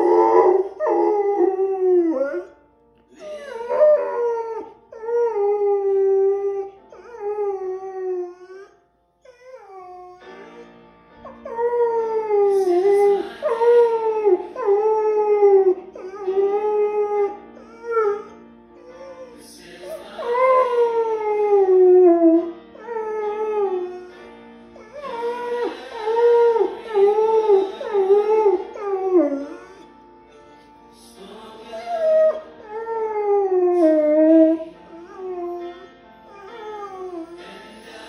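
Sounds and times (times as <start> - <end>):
dog howling long notes: 0.0 - 2.5, 11.4 - 19.4, 20.2 - 24.1, 24.8 - 29.9, 31.8 - 35.6
worship music: 0.0 - 38.0.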